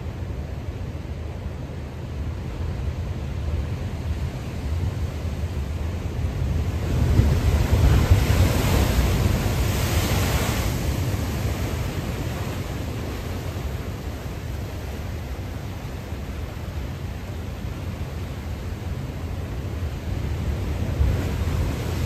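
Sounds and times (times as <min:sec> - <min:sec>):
wind rumble on microphone: 0:00.0 - 0:22.0
wave breaking: 0:07.2 - 0:14.0.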